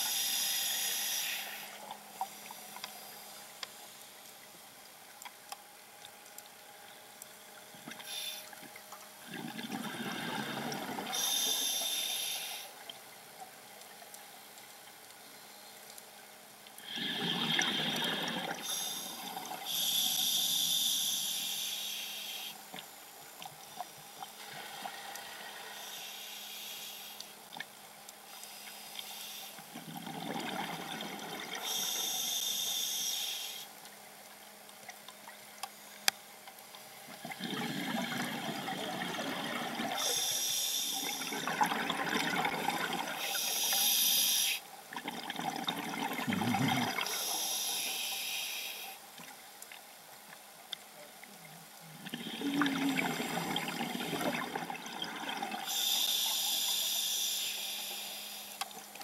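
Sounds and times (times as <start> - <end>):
scuba regulator breathing underwater: 0.0 - 1.8, 43.1 - 44.6, 46.8 - 49.0, 55.3 - 58.6
bubbling exhaled air: 16.8 - 20.0, 37.2 - 44.2, 45.0 - 47.6, 52.0 - 57.2.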